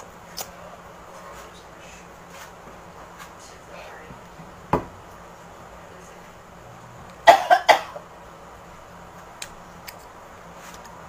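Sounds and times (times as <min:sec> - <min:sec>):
person coughing: 0:07.2 - 0:08.0.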